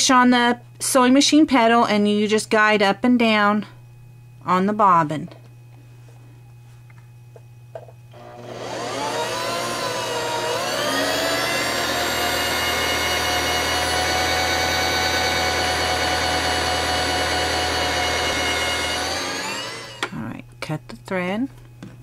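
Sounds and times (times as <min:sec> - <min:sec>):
sewing machine motor whine: 0:08.1 - 0:20.1.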